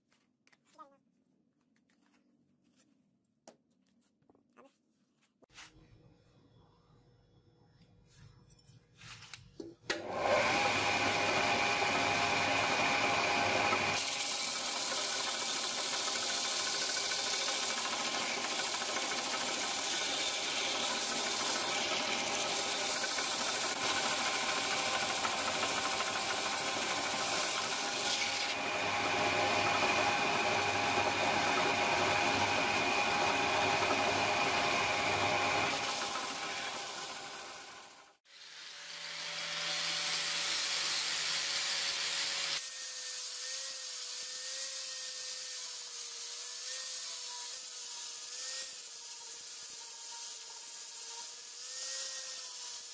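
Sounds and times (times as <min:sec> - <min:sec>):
wood sanding rasp: 0:14.0 - 0:37.3.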